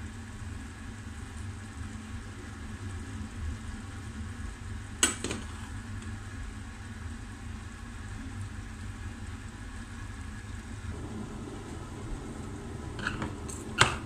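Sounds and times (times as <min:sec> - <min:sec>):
low hum: 0:10.9 - 0:13.7.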